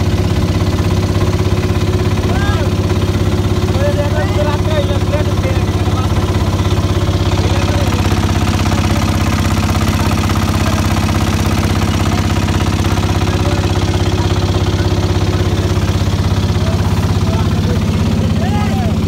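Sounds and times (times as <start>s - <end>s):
boat engine chugging: 0.0s - 19.0s.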